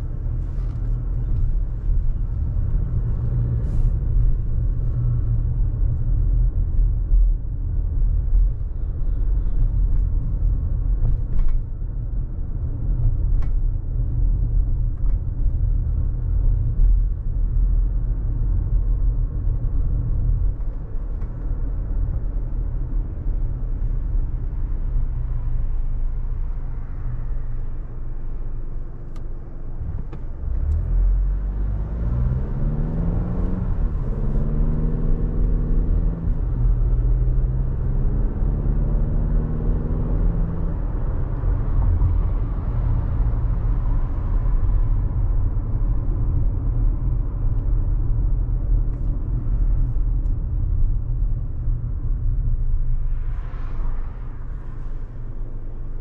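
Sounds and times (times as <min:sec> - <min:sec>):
car engine and road rumble: 0:00.0 - 0:56.0
car engine accelerating: 0:25.4 - 0:56.0.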